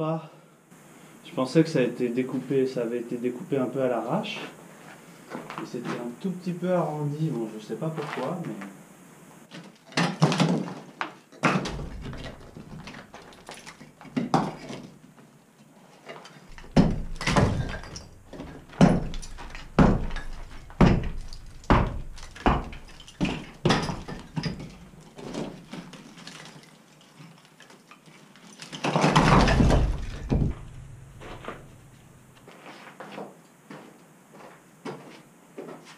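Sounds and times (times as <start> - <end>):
bricks and rubble clattering down: 9.9 - 14.9, 16.5 - 27.6, 28.4 - 31.9
knocks on brick and mortar: 11.4 - 13.3, 16.5 - 25.5, 28.9 - 31.7.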